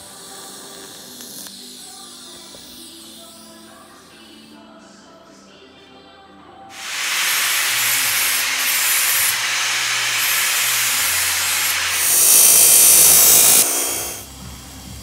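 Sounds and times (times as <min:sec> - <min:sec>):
chop saw cutting metal: 0:06.8 - 0:14.3
power tool running against metal: 0:06.8 - 0:15.0.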